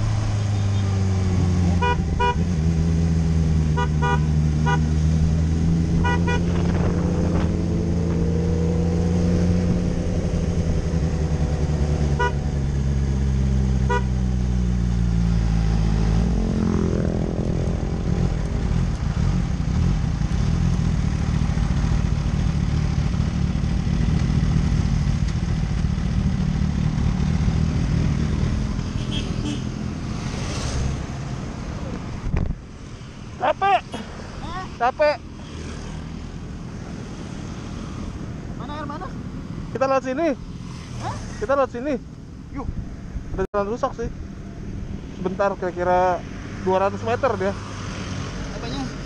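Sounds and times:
wind and road noise: 0:00.0 - 0:49.0
engine revving past: 0:04.9 - 0:12.5, 0:15.2 - 0:18.4, 0:27.5 - 0:32.4, 0:40.3 - 0:41.5
motorcycle engine running: 0:09.1 - 0:30.3.

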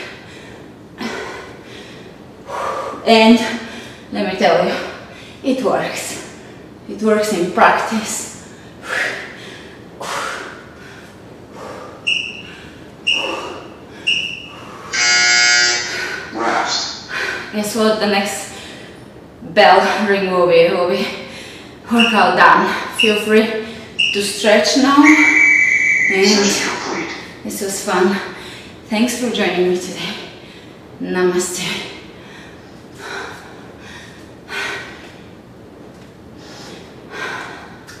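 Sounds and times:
woman breathing hard: 0:00.0 - 0:05.4, 0:08.4 - 0:15.0, 0:17.1 - 0:17.5, 0:21.2 - 0:21.8, 0:32.0 - 0:35.4, 0:36.4 - 0:38.0
short high timer beeps: 0:22.0 - 0:22.3, 0:24.0 - 0:24.3, 0:25.0 - 0:27.2.

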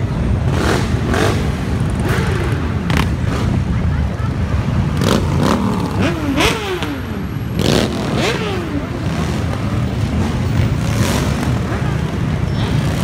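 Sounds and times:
motorcycles riding past: 0:00.0 - 0:13.0
pickup and truck traffic: 0:00.0 - 0:13.0.

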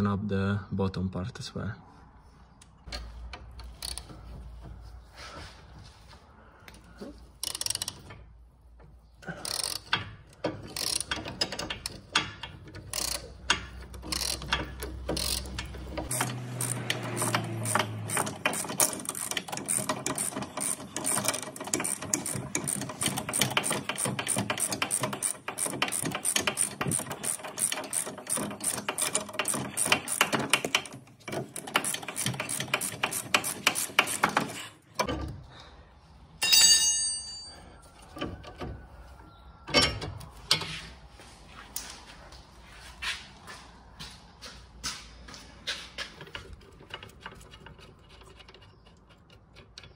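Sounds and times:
ratchet wrench clicking: 0:03.6 - 0:04.1, 0:07.4 - 0:08.1, 0:09.4 - 0:10.0, 0:10.6 - 0:34.6.

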